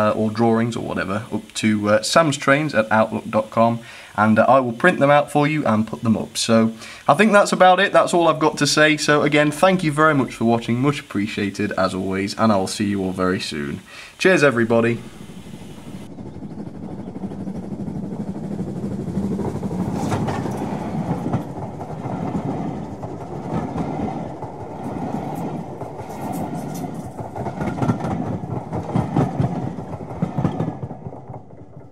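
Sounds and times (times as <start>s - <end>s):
model train wheels rumbling: 0.0s - 31.9s
clicks over rail joints: 19.9s - 31.9s.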